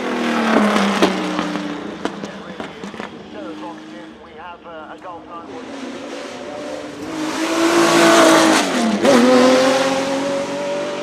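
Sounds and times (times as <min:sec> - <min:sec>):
race car engine passing by: 0:05.4 - 0:11.0.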